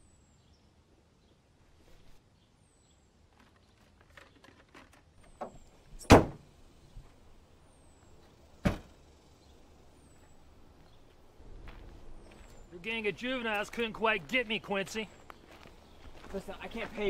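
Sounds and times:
car hood slamming shut: 6.0s - 6.4s, 8.6s - 8.9s
car trunk lid slamming: 6.0s - 6.4s, 8.6s - 8.9s.

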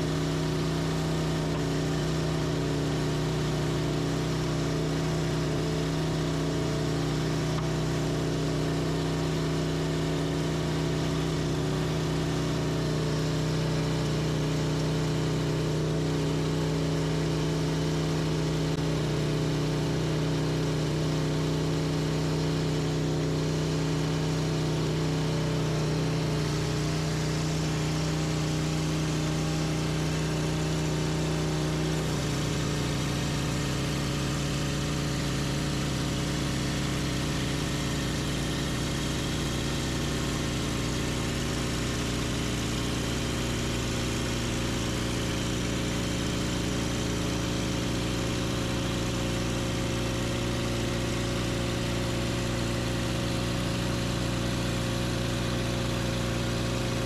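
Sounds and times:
sawmill engine sawing log: 20.5s - 57.0s.

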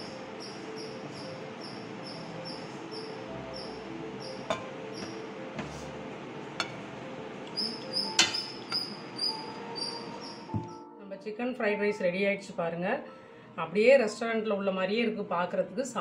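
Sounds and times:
insect chirping: 0.0s - 5.3s, 7.6s - 10.6s.

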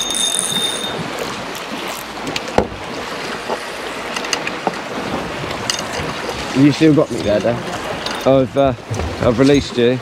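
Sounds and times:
sea noise: 0.0s - 10.0s
wind: 0.0s - 10.0s
knock on boat: 2.5s - 2.8s.

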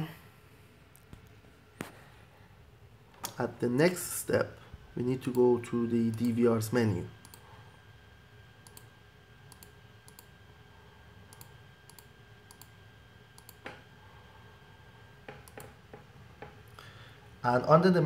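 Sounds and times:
computer mouse clicks: 6.1s - 6.3s, 7.2s - 7.4s, 8.6s - 8.9s, 9.5s - 10.3s, 11.3s - 12.7s, 13.4s - 13.8s, 15.3s - 15.8s.

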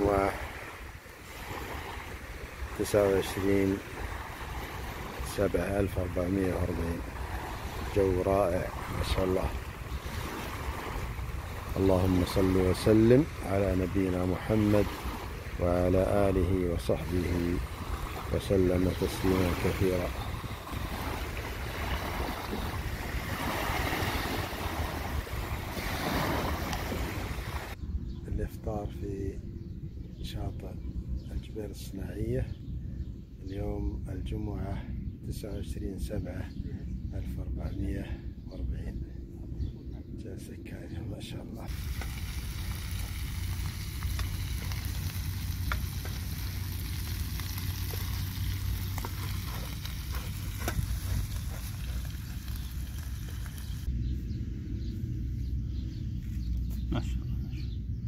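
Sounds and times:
small waves washing onto sand: 0.0s - 27.8s, 41.7s - 53.9s
wind rumbling on microphone: 0.0s - 58.0s
low rumble: 36.0s - 58.0s
eggs sizzling in a frying pan: 41.7s - 50.1s.

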